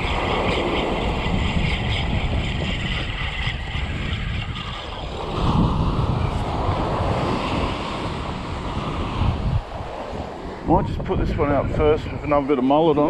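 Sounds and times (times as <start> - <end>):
wind buffeting microphone: 0.0 - 13.0
waves washing onto beach: 5.2 - 11.2.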